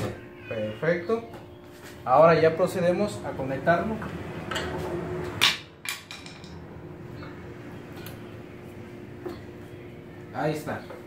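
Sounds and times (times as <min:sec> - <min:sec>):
steady low hum: 0:06.4 - 0:11.0.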